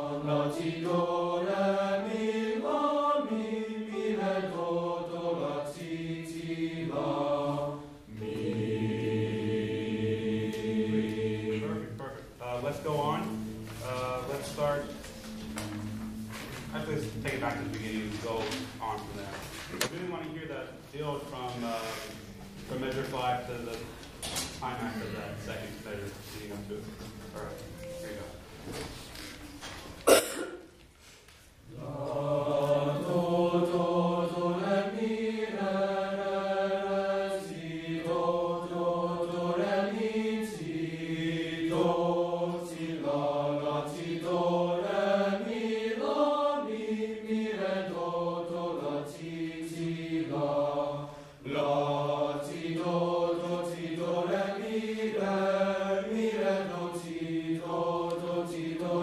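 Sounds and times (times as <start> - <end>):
boys' choir singing: 0.0 - 19.5, 31.7 - 59.0.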